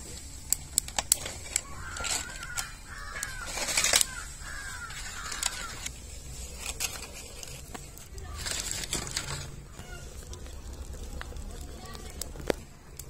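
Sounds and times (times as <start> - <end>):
sharp clicks: 0.4 - 6.0
crows cawing: 1.4 - 5.9, 9.3 - 10.4.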